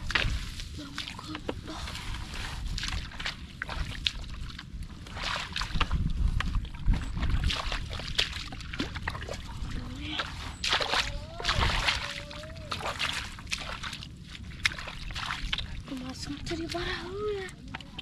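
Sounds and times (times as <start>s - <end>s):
footsteps squelching in mud: 0.0s - 18.0s
wind buffeting microphone: 0.0s - 18.0s.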